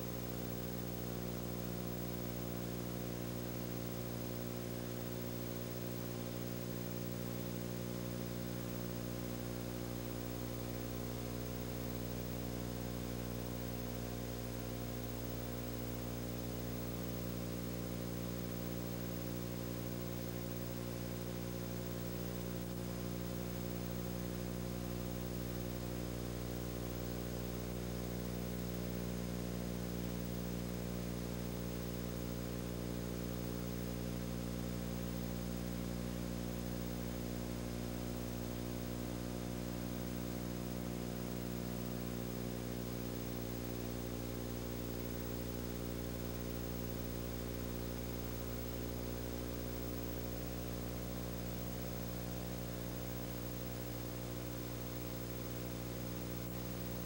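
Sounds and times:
steady low hum of held tones: 0.0s - 57.0s.

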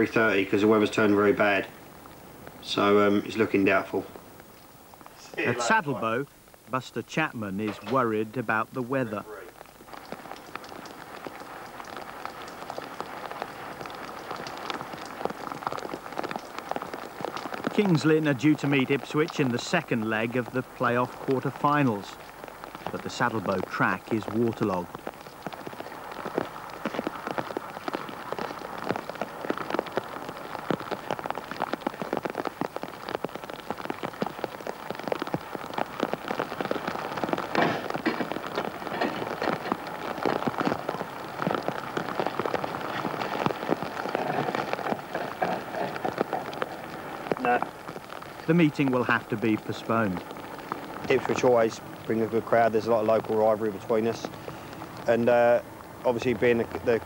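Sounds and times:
rain hissing: 0.0s - 57.0s
raindrops ticking and splashing: 0.0s - 57.0s.

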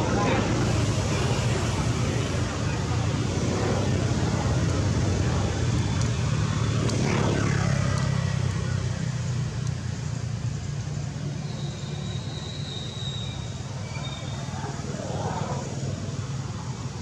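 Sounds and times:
low engine drone: 0.0s - 11.4s.

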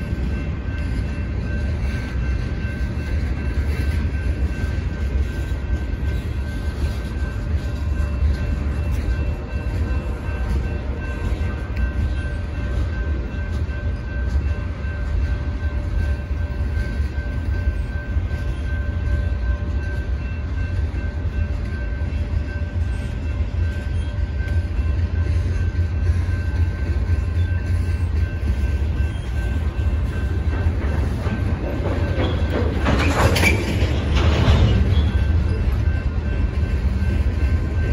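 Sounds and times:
faint steady tones: 0.0s - 37.9s
train wheels rumbling on rail: 0.0s - 37.9s
rattling rush: 19.0s - 37.9s.

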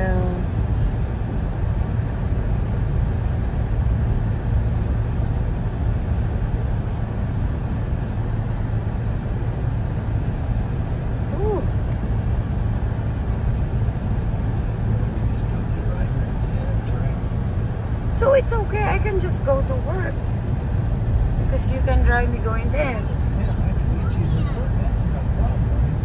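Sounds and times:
car cabin road noise: 0.0s - 26.0s
low rumble: 0.0s - 26.0s.

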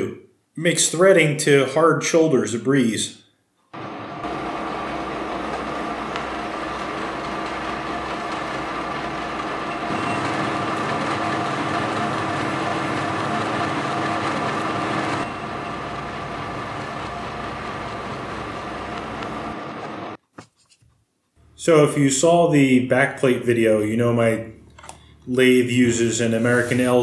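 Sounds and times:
metal lathe gear whine: 3.8s - 20.2s.

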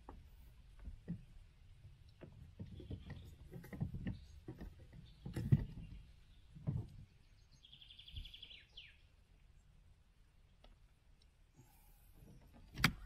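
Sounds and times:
dull thumps and knocks of handling: 2.2s - 7.1s.

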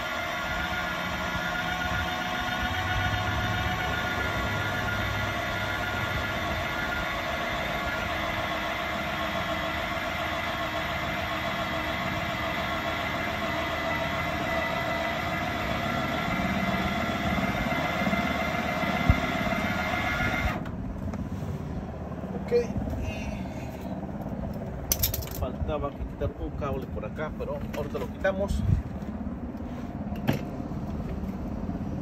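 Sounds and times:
jack motor whining: 0.0s - 21.9s.

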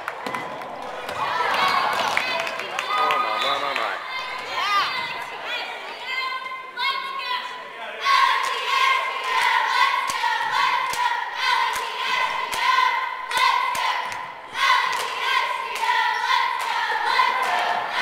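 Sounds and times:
cheerleaders chanting in unison: 0.7s - 18.0s
claps or stomps keeping a beat: 13.3s - 16.0s.

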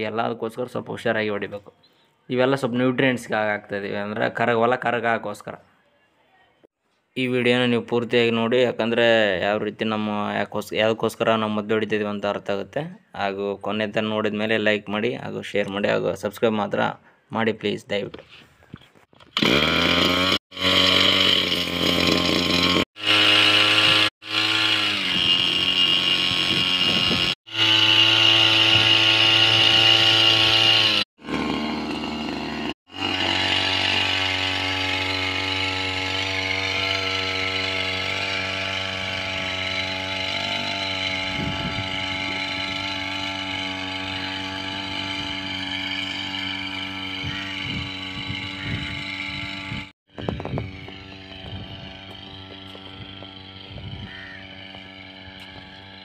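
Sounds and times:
two-stroke sprayer engine running: 19.2s - 56.0s.

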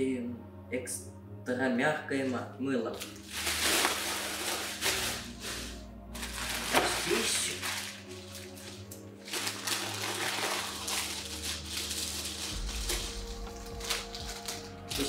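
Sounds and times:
plastic bags rustling: 3.0s - 15.0s.

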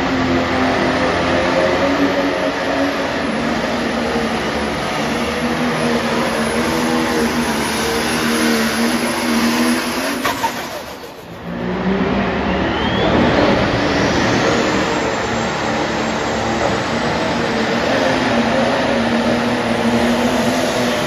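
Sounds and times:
tractor engine droning loudly: 0.0s - 21.0s
high whine: 10.9s - 17.2s.

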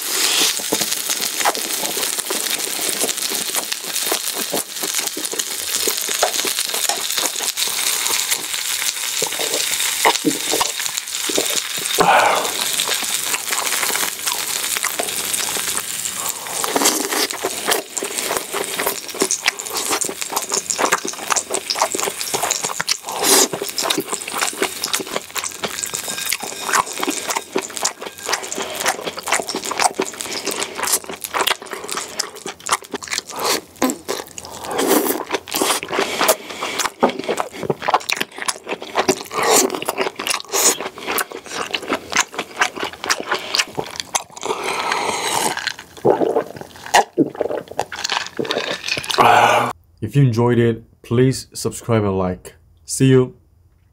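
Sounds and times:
meat sizzling on a grill pan: 0.0s - 34.4s
close-up chewing: 0.0s - 49.8s.

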